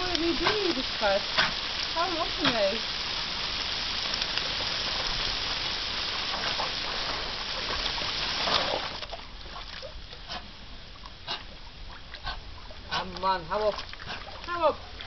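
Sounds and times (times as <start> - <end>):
garden hose spraying water: 0.0 - 10.5
water splashing: 0.0 - 15.0.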